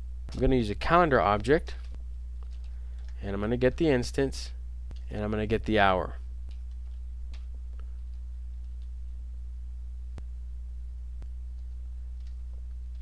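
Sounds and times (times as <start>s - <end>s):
low electrical hum: 0.0s - 13.0s
faint keyboard clicks: 1.8s - 3.2s, 6.5s - 9.0s, 11.5s - 13.0s.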